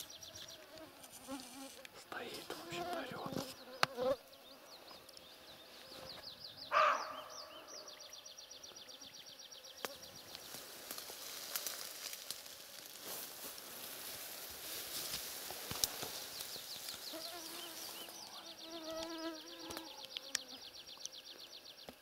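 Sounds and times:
deer hoarse bark: 6.7 - 7.3.

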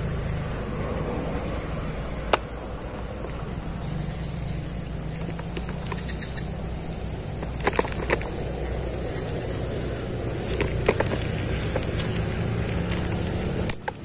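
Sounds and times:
insects buzzing: 0.0 - 14.0
sharp clicks: 2.2 - 3.4, 5.1 - 6.5, 10.4 - 14.0.

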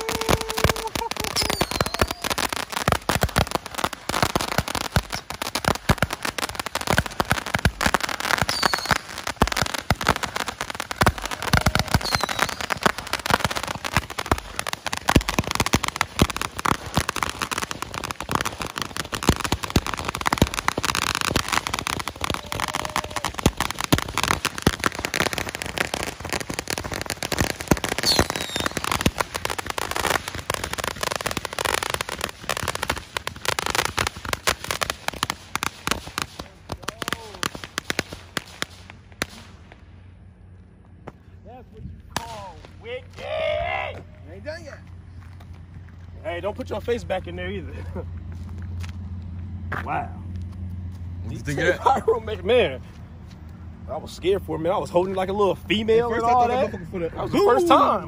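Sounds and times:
roman candle pops and crackling: 0.0 - 39.5.

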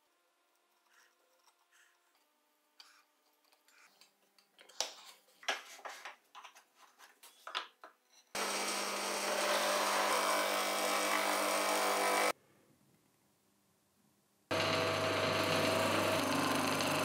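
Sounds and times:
gouge grinding on sanding wheel: 14.5 - 17.0.

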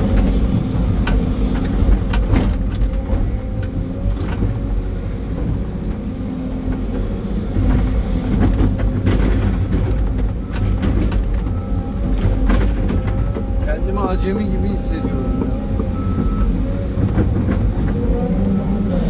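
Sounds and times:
excavator diesel engine under load: 0.0 - 19.0
sharp clicks and knocks: 0.1 - 4.6, 7.6 - 18.0.

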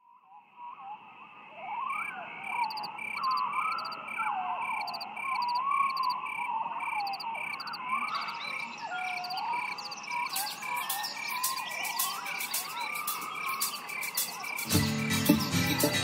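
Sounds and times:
pulsing beat: 10.4 - 16.0.

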